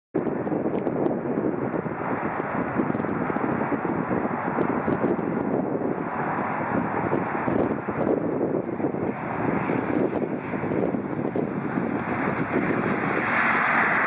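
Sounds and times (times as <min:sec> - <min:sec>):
jet engines roaring: 0:00.2 - 0:14.0.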